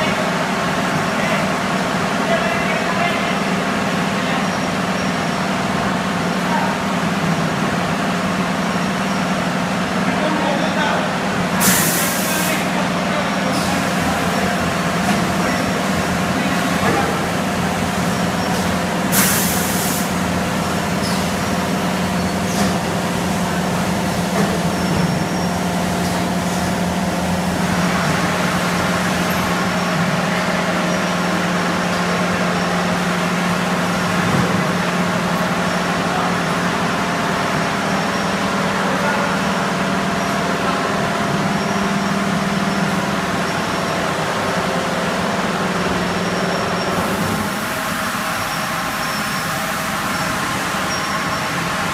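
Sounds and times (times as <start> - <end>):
air hissing: 11.6 - 12.8, 18.4 - 20.3.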